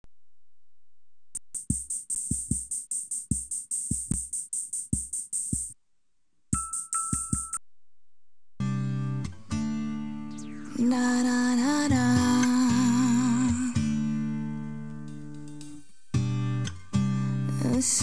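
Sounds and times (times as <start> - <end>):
hi-hat ticks: 1.4 - 5.8
kick drum thumps: 1.6 - 5.8
sustained synth chord: 9.9 - 11.2
steady high synth tone: 10.1 - 11.8.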